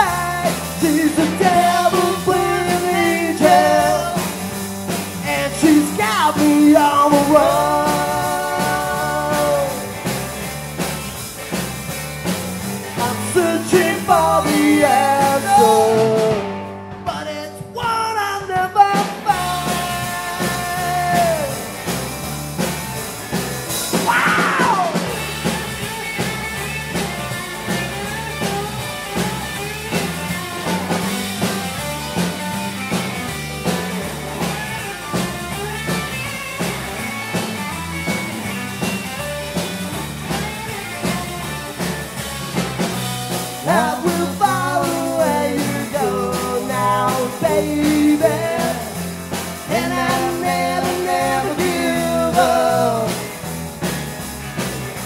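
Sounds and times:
person singing: 0.0s - 4.4s, 5.2s - 10.0s, 13.0s - 21.8s, 24.0s - 25.2s, 43.6s - 53.4s
drums and bass: 0.0s - 55.0s
lead electric guitar: 0.0s - 55.0s.

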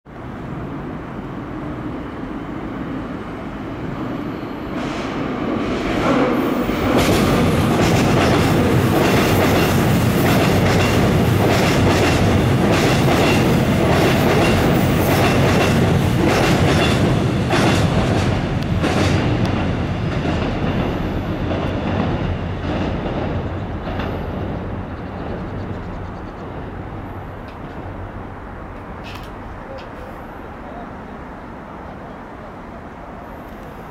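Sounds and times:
train rumbling past: 0.1s - 33.9s
wheels clacking over rail joints: 6.9s - 28.0s.

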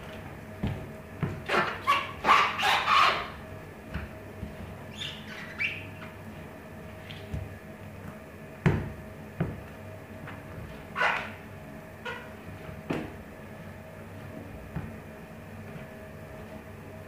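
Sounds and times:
shoes scuffing on floor: 0.0s - 11.4s, 12.1s - 16.7s
shoe squeaks: 1.4s - 3.4s, 4.7s - 6.2s, 10.9s - 11.4s, 12.0s - 12.4s.

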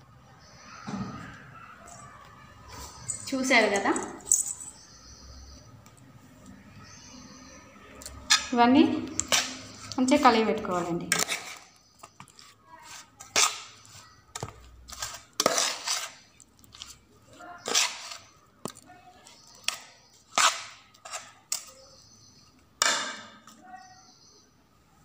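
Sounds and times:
spoon scraping a steel pot: 8.1s - 17.0s, 17.6s - 18.4s, 19.3s - 21.8s.

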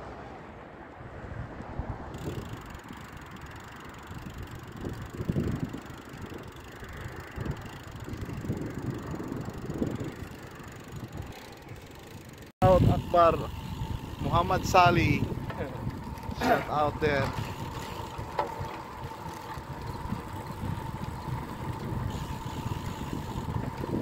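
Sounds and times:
wind rumbling on microphone: 0.0s - 24.0s.

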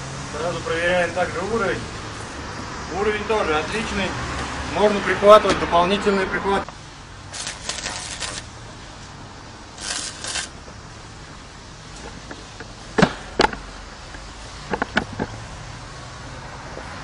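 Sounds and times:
welding arc crackling hiss: 6.7s - 14.7s
sharp metal knocks: 13.0s - 13.7s.

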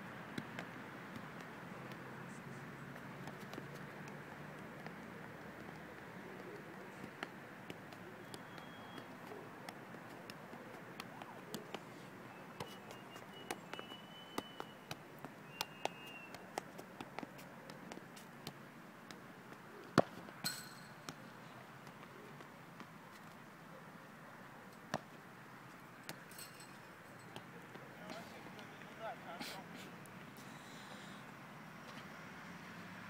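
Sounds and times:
football taps by foot: 0.2s - 2.2s, 2.9s - 23.3s, 24.9s - 25.2s, 26.0s - 26.3s, 27.3s - 29.0s
hard ball kick: 20.0s - 21.2s
ringing clang: 20.4s - 21.0s.

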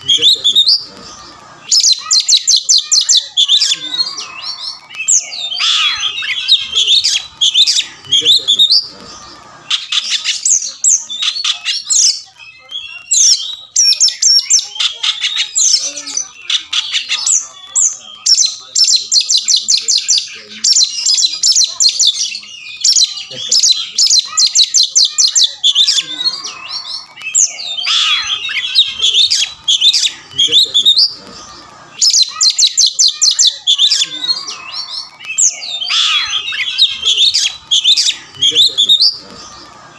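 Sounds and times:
rasping falling bird call: 0.1s - 10.3s, 32.1s - 39.6s.

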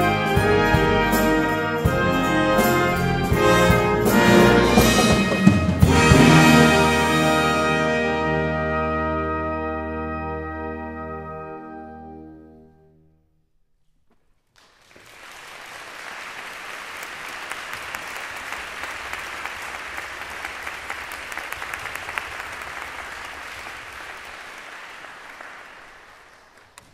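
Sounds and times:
wind orchestra held chord: 0.1s - 13.0s
applause: 14.5s - 26.9s.

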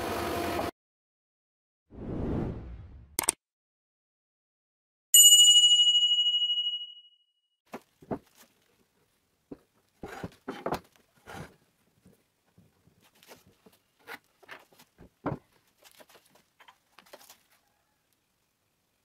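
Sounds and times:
wood knocking and scraping on wood: 7.7s - 8.7s, 9.5s - 17.5s.

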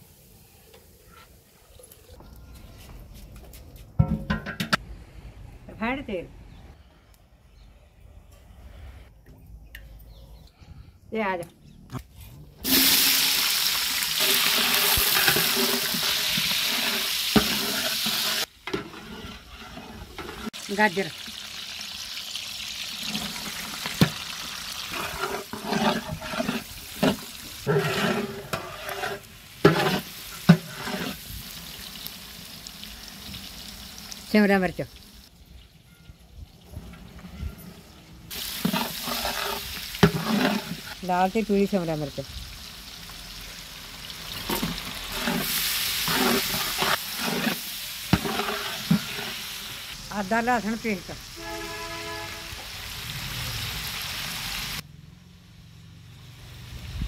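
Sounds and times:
frying sizzle: 0.0s - 2.0s, 12.6s - 35.8s, 36.4s - 57.0s
ladle scraping a metal pot: 14.2s - 20.6s, 24.8s - 31.2s, 38.3s - 41.0s, 44.5s - 49.6s.

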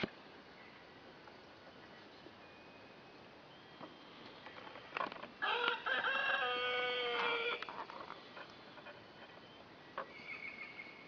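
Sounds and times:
rooster crowing: 5.4s - 7.7s.

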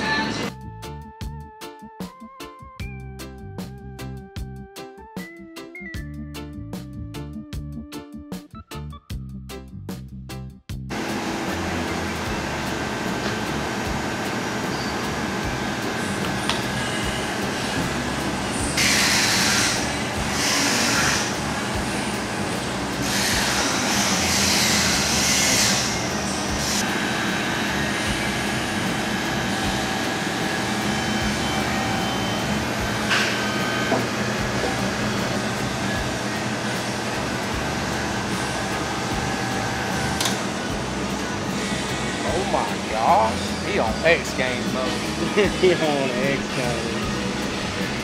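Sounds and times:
pump motor droning: 10.9s - 48.0s.

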